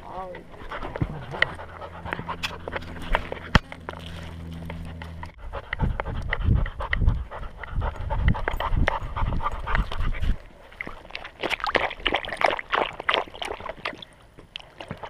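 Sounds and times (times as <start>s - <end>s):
puppy panting: 0.4s - 3.7s, 4.4s - 10.5s
dog lapping water: 0.4s - 15.0s.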